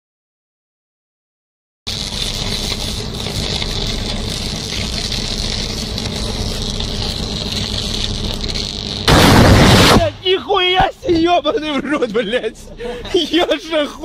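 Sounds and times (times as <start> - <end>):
electrical arc buzzing and crackling: 1.9 - 11.4.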